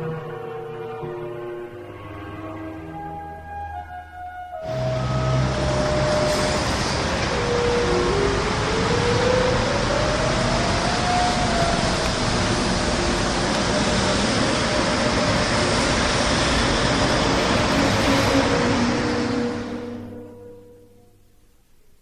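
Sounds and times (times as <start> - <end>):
street traffic noise: 4.6 - 20.5.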